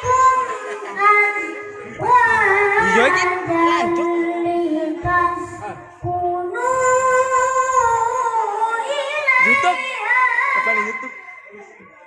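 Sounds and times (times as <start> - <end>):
child reciting melodically over pa: 0.0 - 12.0.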